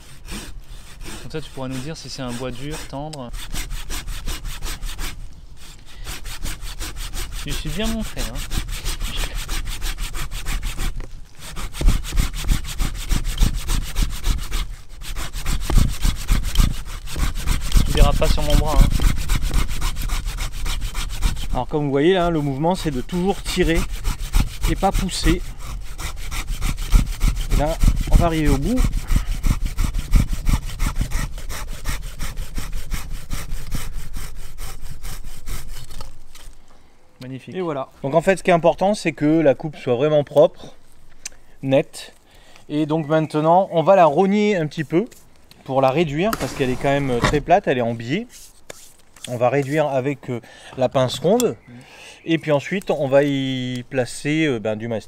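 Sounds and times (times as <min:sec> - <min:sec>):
hand saw cutting wood: 0:00.0 - 0:36.6, 0:45.8 - 0:49.9.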